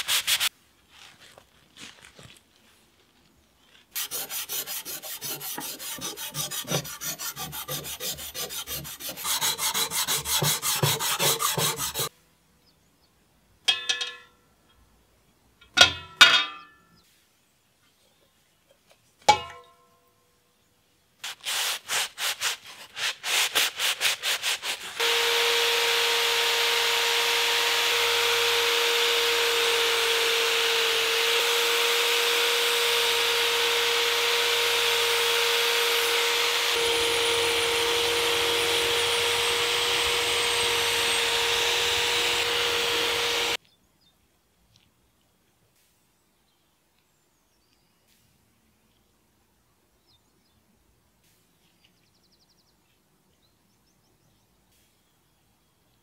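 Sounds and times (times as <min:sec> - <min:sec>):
drill wire wheel scrubbing metal: 0:04.0 - 0:12.1, 0:22.9 - 0:43.6.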